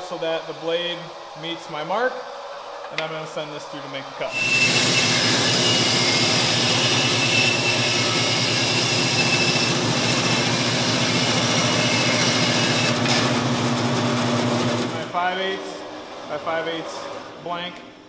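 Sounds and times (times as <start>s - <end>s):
bandsaw cutting wood: 4.3s - 15.2s.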